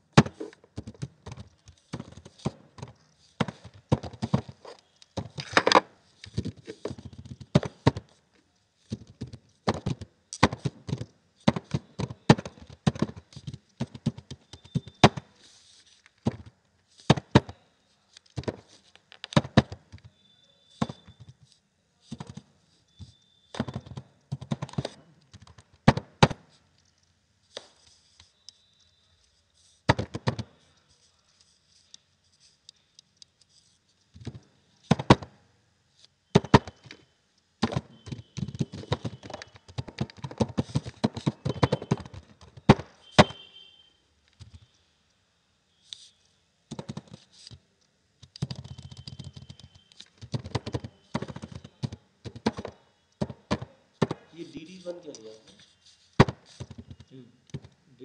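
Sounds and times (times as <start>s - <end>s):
keyboard typing: 0.2s - 8.1s, 20.8s - 26.4s, 37.6s - 43.4s, 46.7s - 47.6s, 48.2s - 55.6s.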